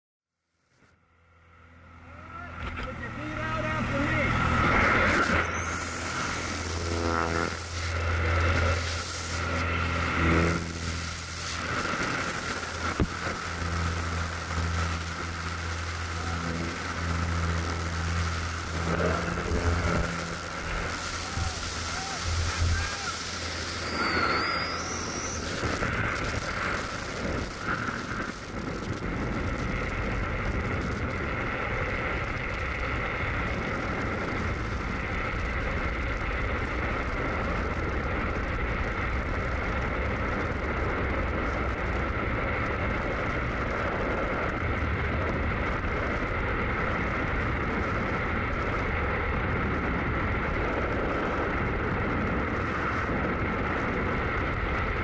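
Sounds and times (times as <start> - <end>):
wind rushing over microphone: 2.4 - 55.0
faint steady whistle: 21.2 - 26.6.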